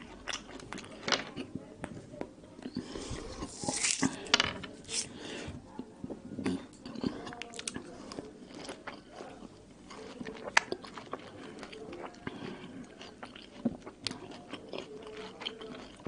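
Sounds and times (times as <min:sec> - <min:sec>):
mandarin segments tearing: 0:03.5 - 0:04.1
wet chewing with mouth clicks: 0:05.8 - 0:16.0.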